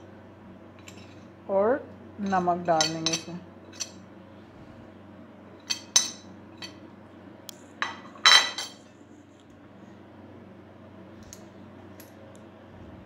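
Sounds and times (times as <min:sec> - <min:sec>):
kitchenware clinking: 0:02.2 - 0:04.0, 0:05.6 - 0:06.8, 0:07.8 - 0:08.8.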